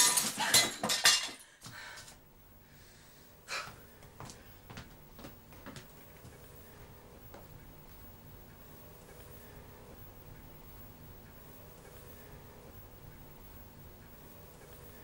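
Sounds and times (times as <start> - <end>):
soft footsteps on wooden floor: 3.7 - 8.0.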